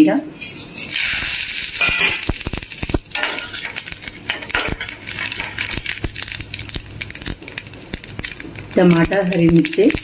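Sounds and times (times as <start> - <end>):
metal spatula scraping pan: 0.4 - 2.3
seeds sizzling in hot oil: 0.4 - 10.0.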